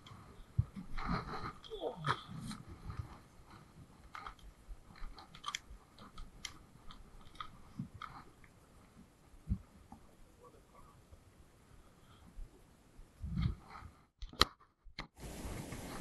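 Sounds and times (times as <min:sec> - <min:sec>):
handling clicks and rustles: 0:00.0 - 0:10.2.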